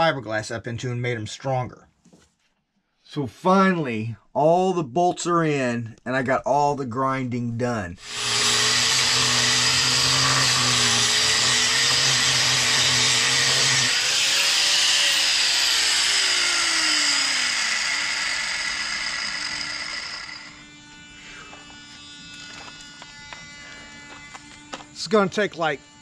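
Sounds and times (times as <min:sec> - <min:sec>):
electric grinder running: 0:08.0 - 0:26.0.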